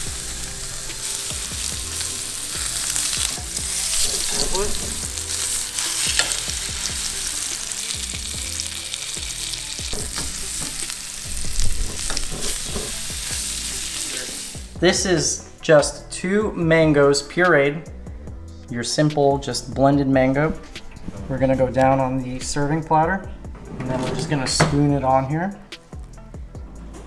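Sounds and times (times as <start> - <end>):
fish sizzling in a frying pan: 0.0 - 14.8.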